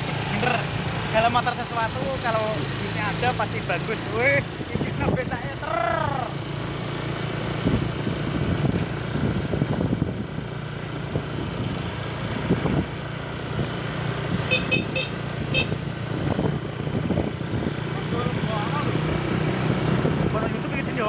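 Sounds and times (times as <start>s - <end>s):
scooter engines running: 0.0s - 21.0s
wind rumbling on microphone: 4.3s - 5.7s, 7.3s - 21.0s
short high horn toots: 14.5s - 15.8s.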